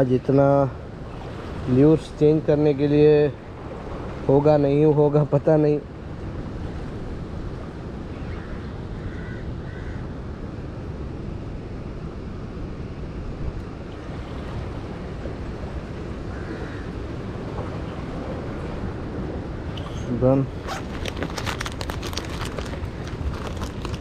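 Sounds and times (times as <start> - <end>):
wind rumbling on microphone: 0.0 - 24.0
sea surf rushing around rocks: 10.3 - 21.3.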